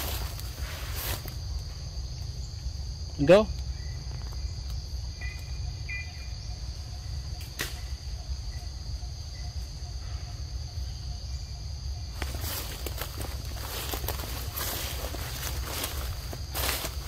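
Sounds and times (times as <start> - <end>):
forest insects droning: 0.0 - 17.0.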